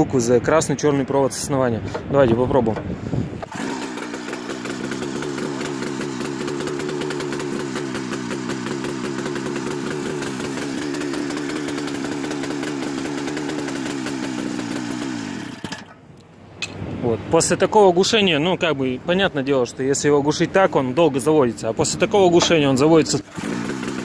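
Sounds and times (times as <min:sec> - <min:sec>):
snowmobile engine running: 0:03.4 - 0:15.6, 0:21.8 - 0:24.0.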